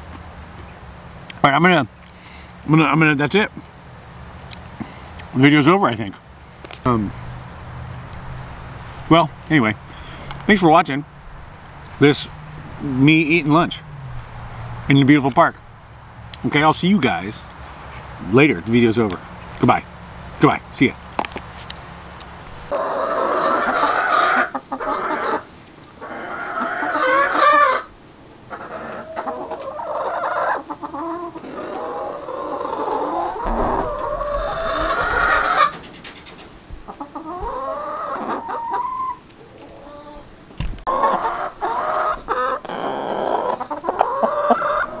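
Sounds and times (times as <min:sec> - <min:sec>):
chickens clucking and calling: 0:21.5 - 0:45.0.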